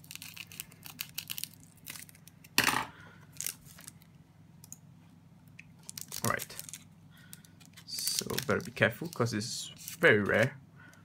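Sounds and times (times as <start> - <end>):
plastic wrapping crinkling: 0.0 - 2.5, 3.3 - 4.1, 5.8 - 10.5.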